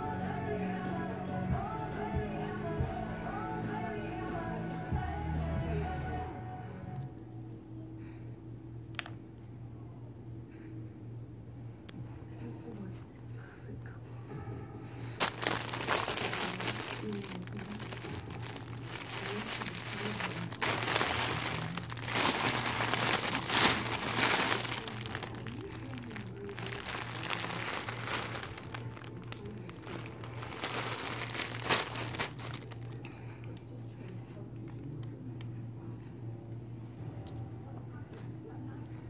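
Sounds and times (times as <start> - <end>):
plastic bags crinkling: 15.2 - 33.0.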